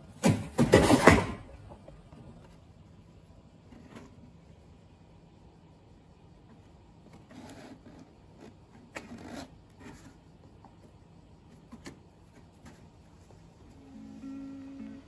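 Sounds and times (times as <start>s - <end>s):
cat scratching cardboard box: 7.0s - 10.4s.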